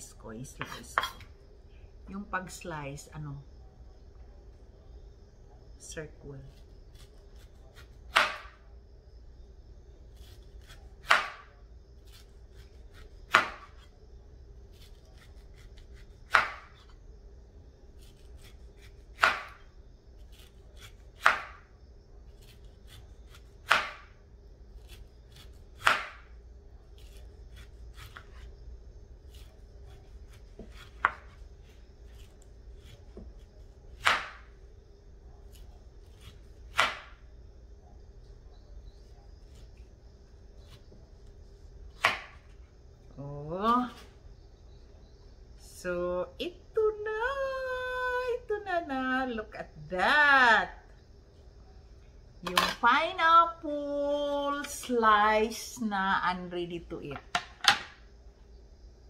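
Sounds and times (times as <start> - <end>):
knife chopping on wooden board: 7.8 - 8.6, 10.6 - 11.5, 13.3 - 13.8, 16.3 - 16.8, 19.2 - 19.6, 21.2 - 21.6, 23.3 - 24.1, 25.8 - 26.2, 30.3 - 31.4, 34.0 - 34.5, 36.2 - 37.2, 42.0 - 42.4.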